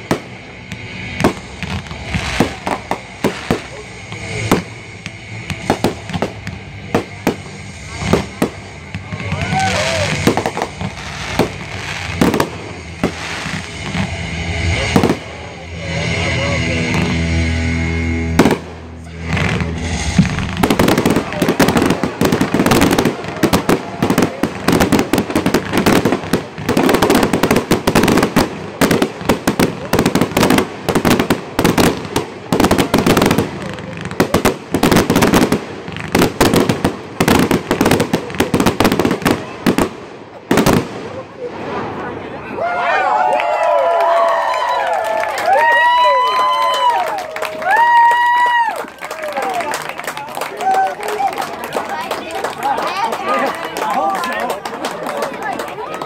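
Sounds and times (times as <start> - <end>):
sharp firework bangs: 0.0 - 16.2, 16.8 - 42.1
fireworks bursting: 0.0 - 42.6
crackling hiss of fireworks: 0.0 - 56.0.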